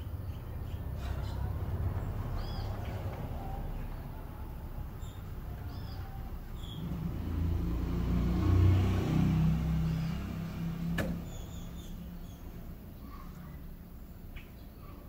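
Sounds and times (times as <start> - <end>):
vehicle engine rumble passing: 0.0 - 15.0
sharp click: 10.9 - 11.2.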